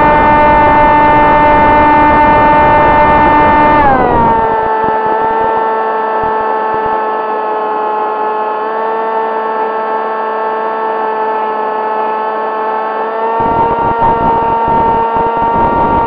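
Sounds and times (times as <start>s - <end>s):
electric propeller whining: 0.0s - 16.0s
wind rumble on microphone: 13.4s - 16.0s.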